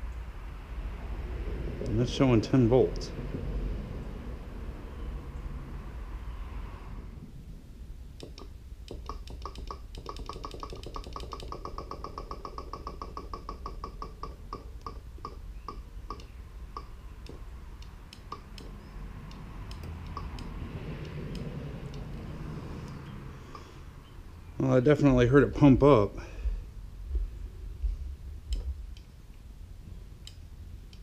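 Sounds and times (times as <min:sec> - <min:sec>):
fuel pump ticking: 0:08.2 - 0:22.1.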